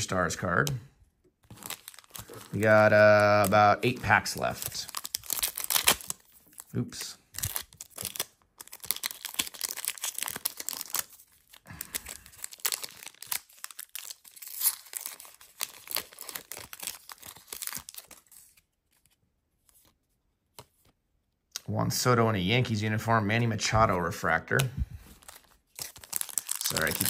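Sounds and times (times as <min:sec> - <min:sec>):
foil wrapper tearing and crinkling: 0:01.4 - 0:18.6, 0:25.2 - 0:27.0.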